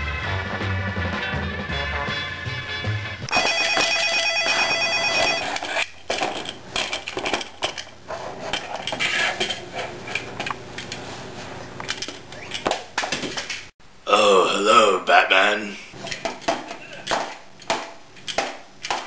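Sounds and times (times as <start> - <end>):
electronic ringing tone: 3.3 - 5.6.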